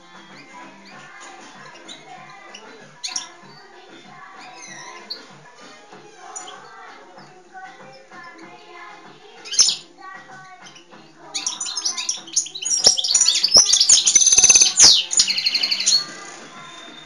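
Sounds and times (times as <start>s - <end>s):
goldfinch twittering song: 0.0s - 8.6s, 9.3s - 9.9s, 10.6s - 17.0s
goldfinch call: 11.4s - 17.0s.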